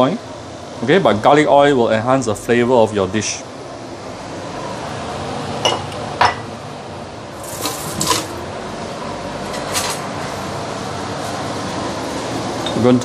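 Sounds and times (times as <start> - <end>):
steady background hum: 0.0 - 13.0
dishes clinking: 5.6 - 6.5, 7.4 - 8.4.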